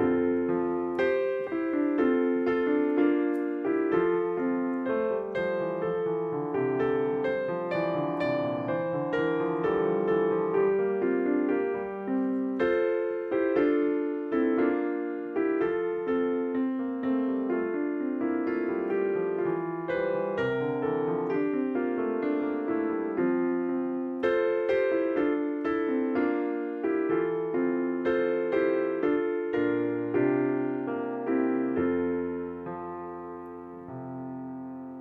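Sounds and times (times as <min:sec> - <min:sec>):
slow piano chords: 0:00.0 - 0:35.0.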